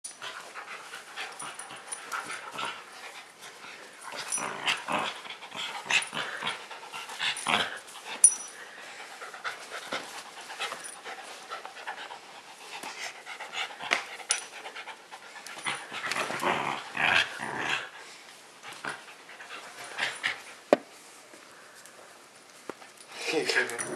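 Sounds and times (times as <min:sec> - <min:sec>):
puppy panting: 0:05.0 - 0:16.2
collar tag clinking: 0:08.1 - 0:08.7.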